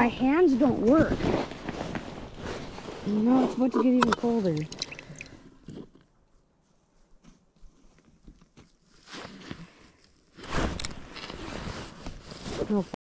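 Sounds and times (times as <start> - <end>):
clothing rustling: 0.4 - 5.8, 6.7 - 13.0.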